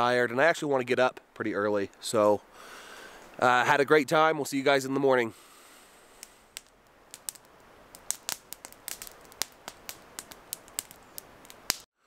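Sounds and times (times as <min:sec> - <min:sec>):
faint hiss: 0:00.0 - 0:11.9
campfire crackling and popping: 0:05.3 - 0:11.9.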